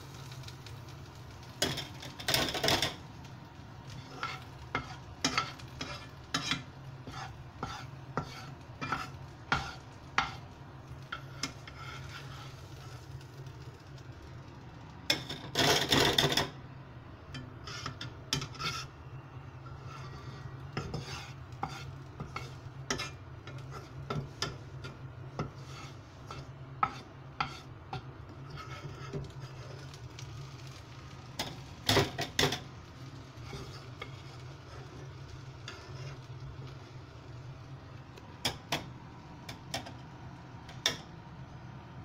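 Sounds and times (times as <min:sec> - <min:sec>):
metal spoon scraping frying pan: 0:01.5 - 0:03.0, 0:03.8 - 0:13.2, 0:15.1 - 0:16.6, 0:17.3 - 0:37.5.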